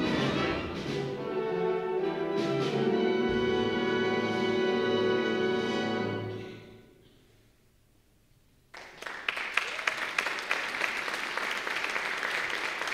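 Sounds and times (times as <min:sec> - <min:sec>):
audience applause: 0:08.7 - 0:12.9.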